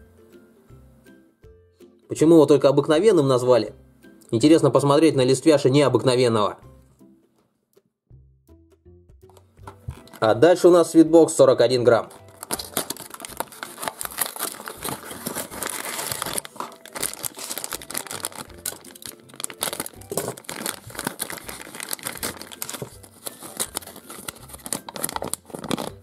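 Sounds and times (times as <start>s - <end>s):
plastic wrappers crinkling: 9.8s - 10.6s, 12.1s - 26.0s
wrapper tearing: 9.9s - 10.4s, 12.1s - 26.0s
cardboard box opening: 12.3s - 26.0s.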